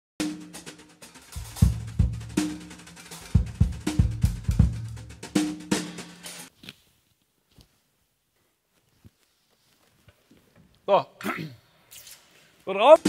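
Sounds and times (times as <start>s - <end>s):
drum kit beat: 0.2s - 6.5s.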